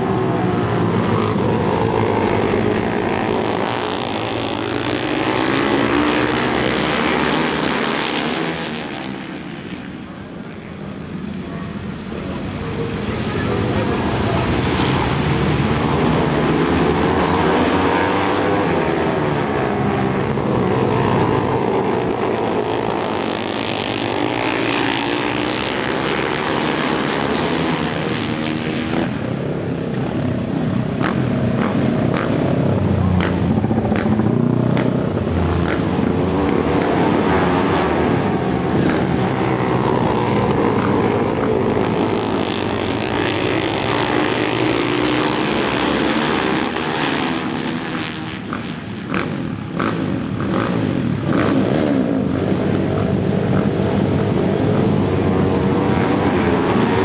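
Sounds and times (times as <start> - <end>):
racing motorcycle engines: 0.0 - 57.0.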